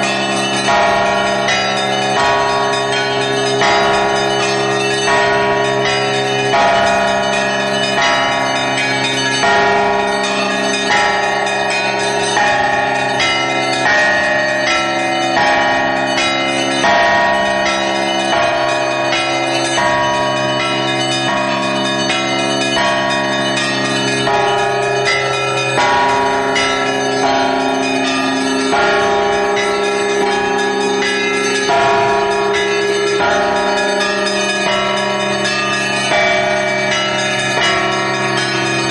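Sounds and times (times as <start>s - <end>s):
church bells pealing: 0.0s - 38.9s.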